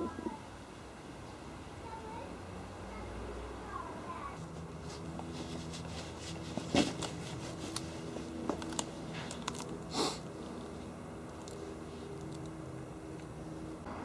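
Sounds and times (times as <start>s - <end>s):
dog gnawing wooden stick: 4.8s - 13.4s.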